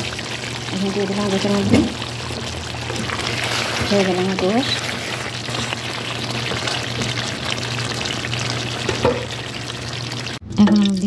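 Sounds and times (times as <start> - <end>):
curry frying in a pot: 0.0 - 11.0
spatula stirring: 1.3 - 10.2.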